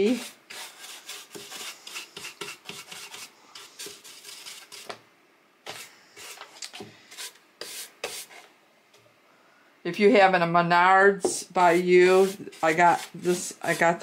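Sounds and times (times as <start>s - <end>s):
paintbrush scratchy strokes: 0.0s - 4.9s, 5.7s - 8.5s, 11.6s - 14.0s.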